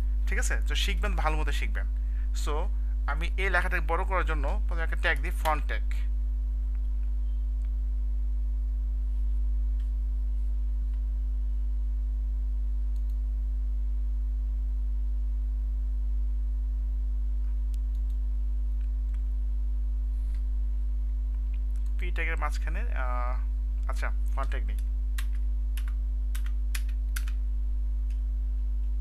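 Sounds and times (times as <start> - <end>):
low electrical hum: 0.0 - 29.0
faint clicks: 12.9 - 13.2, 17.4 - 18.2.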